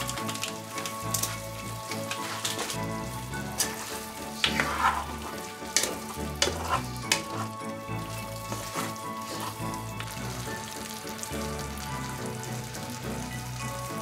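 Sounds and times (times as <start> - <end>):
spatula scraping and knocking pan: 0.0 - 9.8
food sizzling in a frying pan: 0.0 - 14.0.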